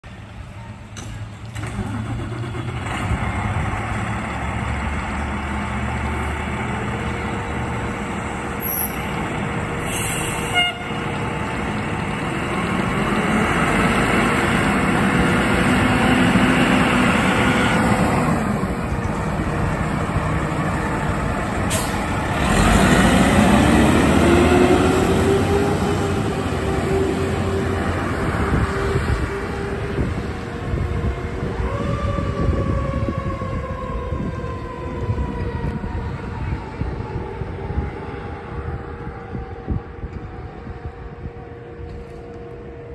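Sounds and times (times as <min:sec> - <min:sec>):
diesel truck engine accelerating: 0:01.1 - 0:41.0
air brakes hiss: 0:09.8 - 0:10.6.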